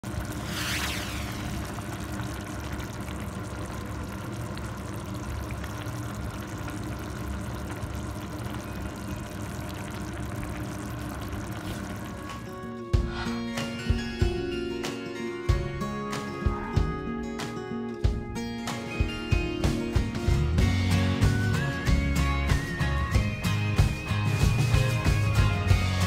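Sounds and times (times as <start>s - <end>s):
sauce bubbling in a frying pan: 0.0s - 12.5s.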